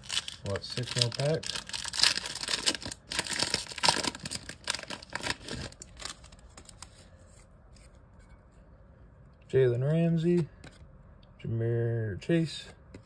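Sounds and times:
wrapper tearing and crinkling: 0:00.0 - 0:06.9.

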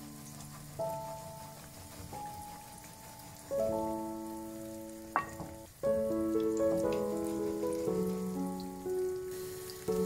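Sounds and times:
food frying in oil: 0:00.0 - 0:10.0
instrumental music: 0:00.0 - 0:10.0.

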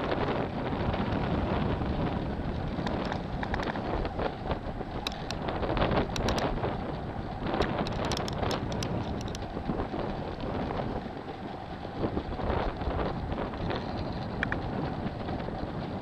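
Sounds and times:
choppy sea rushing: 0:00.0 - 0:16.0
wind buffeting microphone: 0:00.0 - 0:16.0
sharp clicks: 0:02.8 - 0:03.8, 0:05.0 - 0:05.4, 0:06.1 - 0:06.5, 0:07.6 - 0:09.4, 0:14.3 - 0:14.6.

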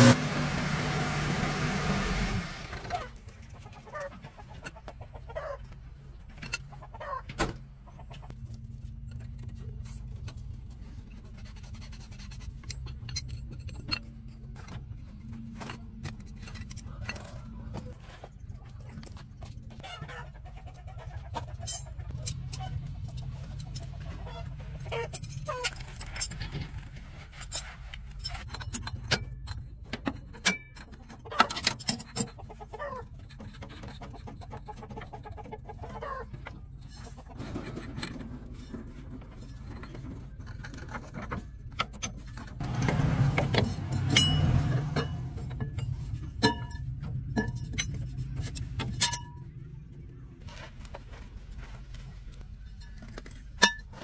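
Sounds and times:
chickens clucking: 0:02.9 - 0:08.3, 0:19.7 - 0:25.6, 0:32.3 - 0:37.4
metal tools clinking on chassis: 0:24.7 - 0:32.4, 0:39.4 - 0:49.6.

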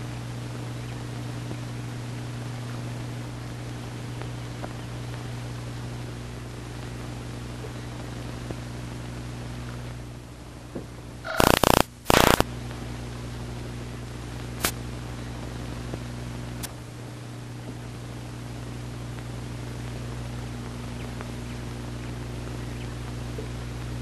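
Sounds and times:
constant hiss: 0:00.0 - 0:24.0
low electrical hum: 0:00.0 - 0:24.0
short sharp clicks: 0:11.3 - 0:12.4.

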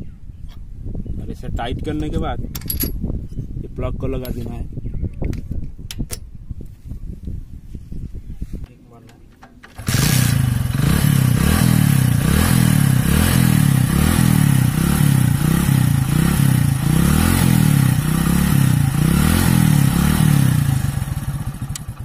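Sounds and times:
motorcycle engine starting and revving: 0:09.4 - 0:22.0.

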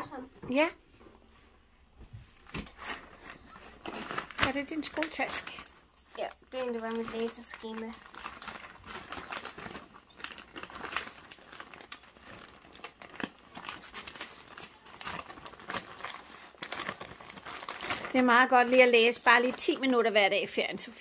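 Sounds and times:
plastic sleeves crinkling: 0:02.3 - 0:21.0.

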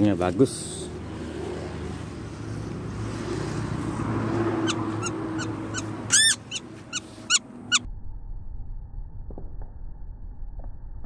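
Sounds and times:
woodpecker harsh calls: 0:04.4 - 0:07.8.

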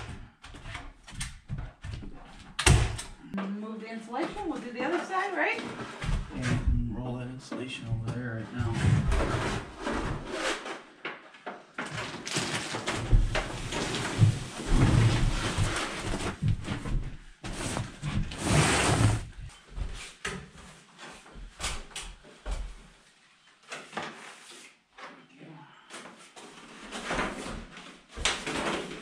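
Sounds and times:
plastic crinkling: 0:12.0 - 0:14.7.

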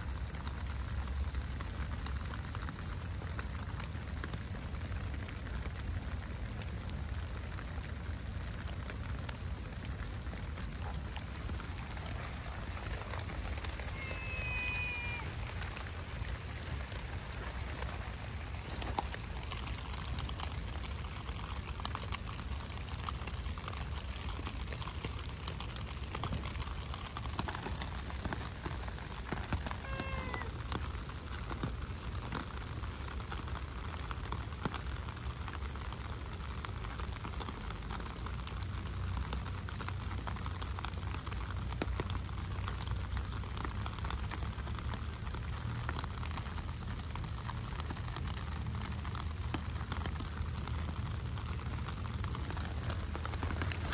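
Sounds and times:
steady rain falling: 0:00.0 - 0:53.9
cat meowing: 0:29.8 - 0:30.5.

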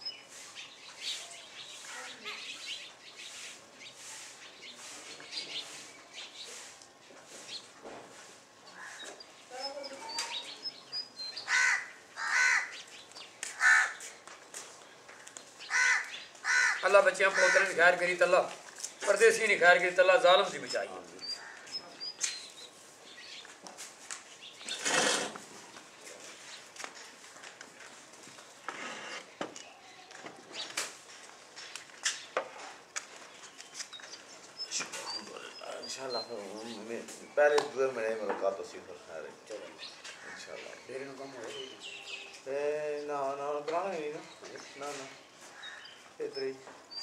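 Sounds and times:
crow cawing: 0:11.5 - 0:12.8, 0:13.5 - 0:14.0, 0:15.7 - 0:17.8, 0:21.4 - 0:21.7
plastic chair scraping: 0:24.6 - 0:25.6, 0:28.6 - 0:29.4.

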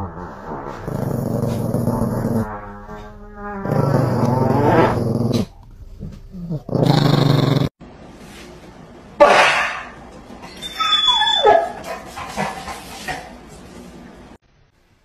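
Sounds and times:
small dog growling: 0:00.8 - 0:02.5, 0:03.6 - 0:07.8
prank fart noise: 0:00.8 - 0:07.7.

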